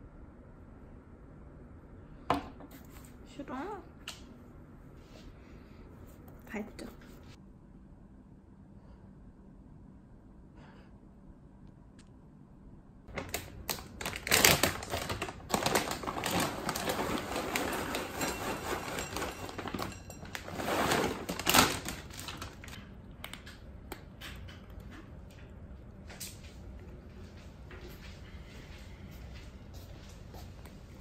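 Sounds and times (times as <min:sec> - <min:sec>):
bag rustling: 0:14.0 - 0:22.8
kibble rattling into glass bowl: 0:16.3 - 0:21.5.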